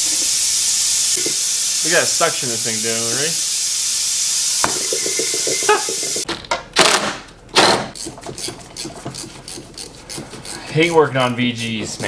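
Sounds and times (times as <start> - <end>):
suction tool hissing: 0.0 - 6.2.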